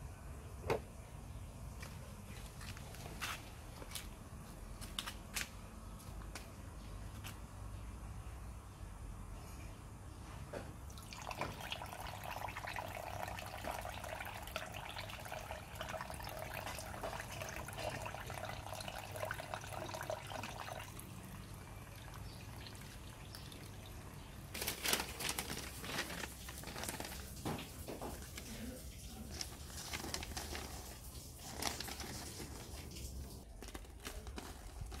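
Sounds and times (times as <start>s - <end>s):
newspaper crinkling: 24.2s - 35.0s
cloth rustling and crackling: 24.5s - 35.0s.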